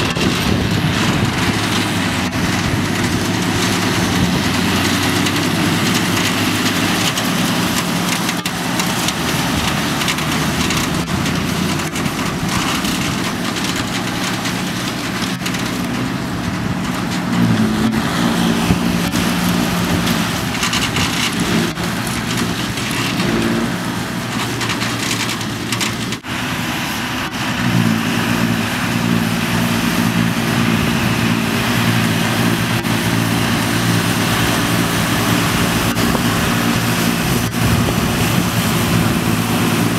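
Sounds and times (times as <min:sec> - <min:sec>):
forage harvester chopping grass: 0:00.0 - 0:39.9
tractor diesel engines running: 0:00.0 - 0:39.9.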